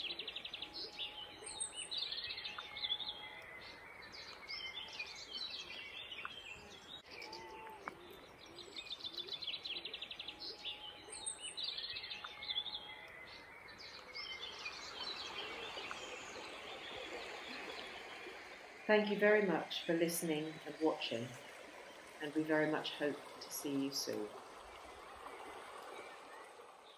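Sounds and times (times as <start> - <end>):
bird trill: 0.0 - 21.6
songbirds singing and calling: 0.0 - 26.9.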